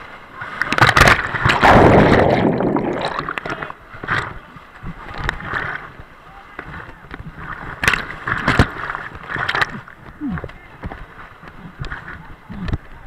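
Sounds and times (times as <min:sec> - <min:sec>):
whitewater crashing and churning: 0:00.0 - 0:13.0
sharp water splashes: 0:00.3 - 0:04.3.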